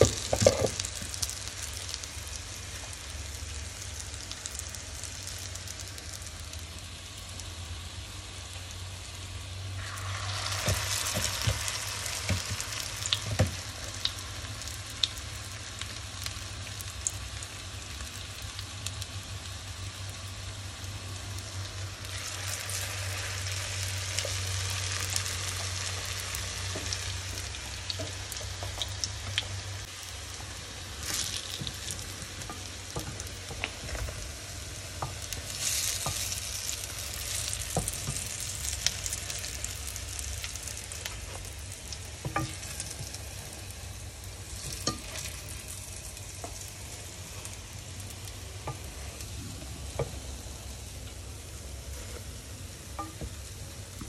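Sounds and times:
steady sizzling hiss: 0.0s - 54.0s.

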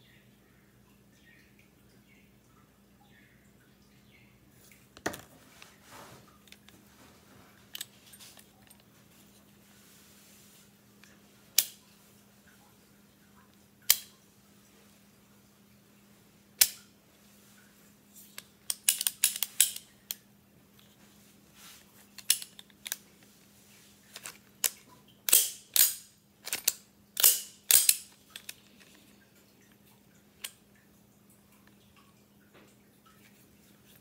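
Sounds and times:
gun action metal clicks: 24.2s - 28.6s.

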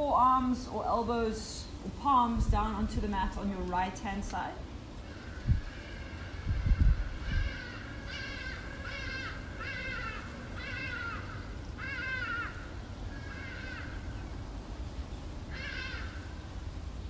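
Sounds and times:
steady low rumble: 0.8s - 11.9s
animal crying: 5.1s - 14.0s, 15.5s - 16.3s.

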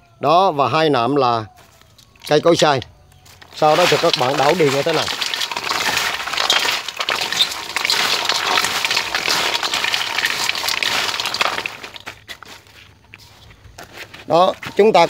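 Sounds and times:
dried herbs rattling when stirred: 3.4s - 12.5s.

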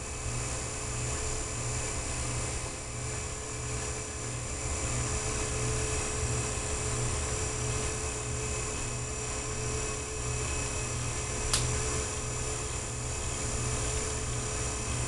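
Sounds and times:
small electric motor humming: 0.0s - 15.0s
sharp click: 11.5s - 11.7s.

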